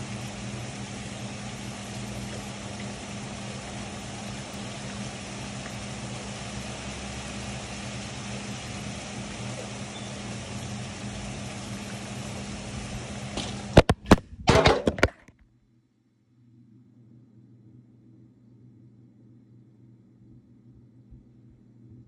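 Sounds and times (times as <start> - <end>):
heavy rain hissing: 0.0 - 13.9
low hum: 0.0 - 14.6, 15.6 - 22.0.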